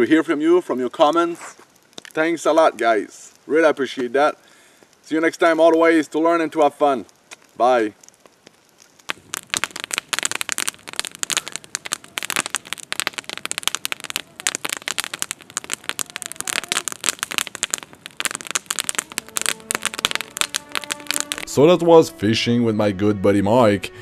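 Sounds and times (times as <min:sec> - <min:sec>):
campfire crackling: 0:00.0 - 0:22.2
logs snapping and popping: 0:01.1 - 0:02.9, 0:07.1 - 0:21.5.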